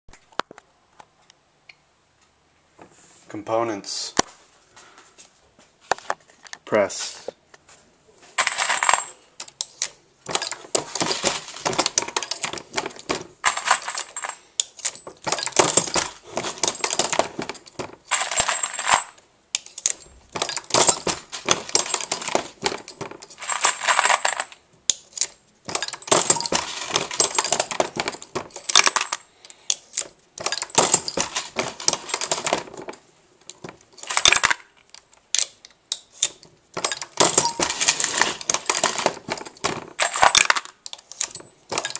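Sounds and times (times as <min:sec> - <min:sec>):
metallic clinking of brass cases: 0:08.4 - 0:41.9.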